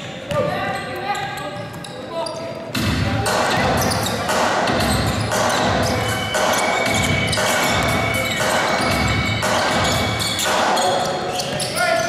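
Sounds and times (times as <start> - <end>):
basketball bouncing on hard court: 6.8 - 8.1.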